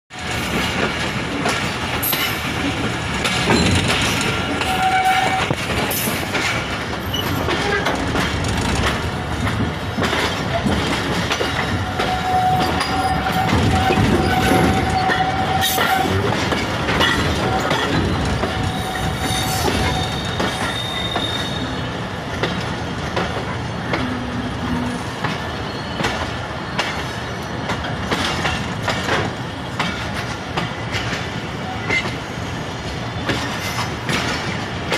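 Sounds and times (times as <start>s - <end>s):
train rumbling on track: 0.1s - 34.9s
wheels clicking over rail joints: 0.2s - 21.3s.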